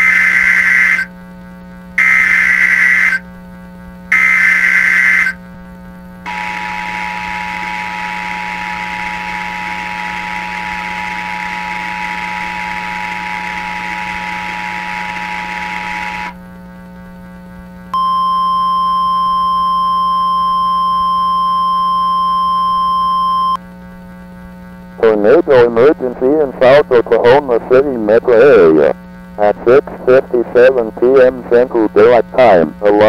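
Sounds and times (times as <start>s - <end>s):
steady warning alarm tone: 0.0s - 1.1s, 2.0s - 3.2s, 4.1s - 5.4s, 6.3s - 16.4s, 18.0s - 23.6s
low steady hum: 0.0s - 33.0s.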